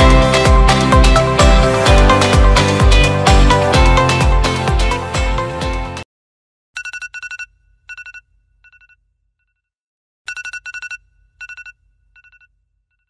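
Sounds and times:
background music: 0:00.0 - 0:06.0.

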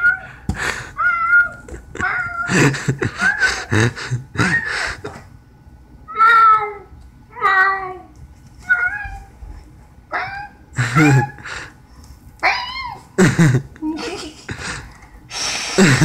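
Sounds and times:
cat meowing: 0:08.6 - 0:09.3.

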